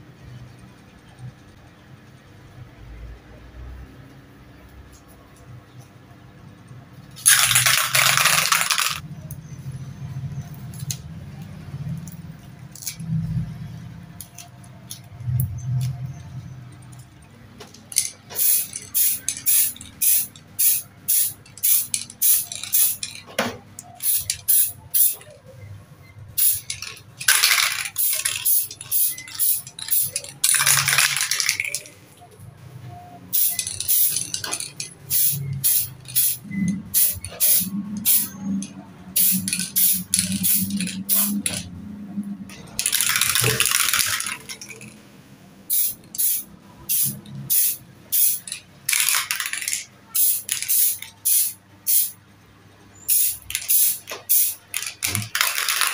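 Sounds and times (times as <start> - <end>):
spray can rattling: 7.2 - 9.0, 12.7 - 13.0, 17.6 - 23.2, 23.8 - 25.3, 26.3 - 31.9, 33.3 - 41.7, 42.5 - 45.0, 45.7 - 52.2, 53.1 - 55.9
paint spraying hiss: 18.4 - 23.0, 35.1 - 38.3, 39.2 - 41.4, 45.7 - 48.6, 50.2 - 52.2, 53.1 - 54.6.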